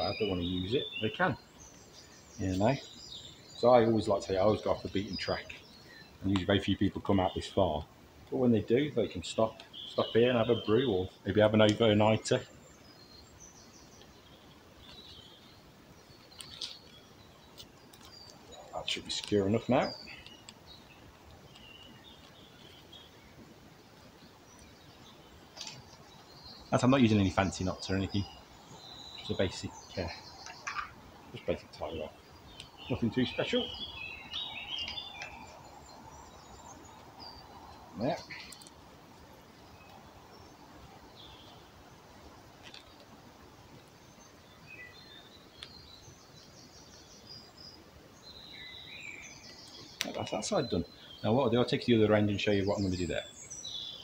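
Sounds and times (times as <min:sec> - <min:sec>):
low background hiss: 0:00.0 - 0:54.0
small birds chirping: 0:00.0 - 0:54.0
high bird chirps: 0:24.1 - 0:41.8.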